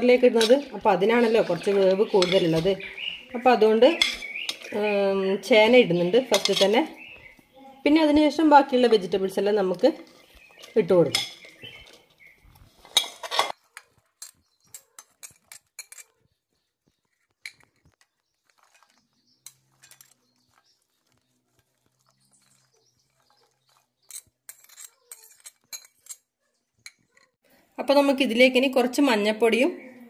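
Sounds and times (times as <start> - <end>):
spoon scraping ceramic plate: 0.1 - 4.8, 6.3 - 7.3, 10.2 - 16.3, 17.2 - 27.3.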